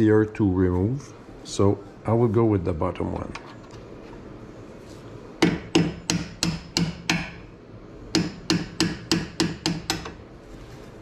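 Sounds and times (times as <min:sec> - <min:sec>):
hammer tapping metal: 0:05.4 - 0:07.5, 0:08.1 - 0:10.2.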